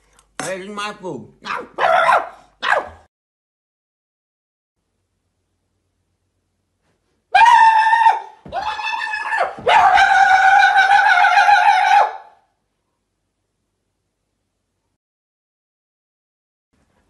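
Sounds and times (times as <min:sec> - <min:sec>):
man howling like a dog: 0:07.4 - 0:12.4.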